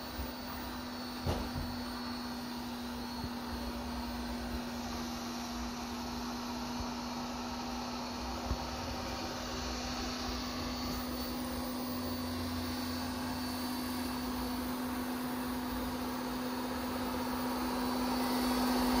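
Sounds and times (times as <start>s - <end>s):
robot vacuum motor hum: 0.0s - 19.0s.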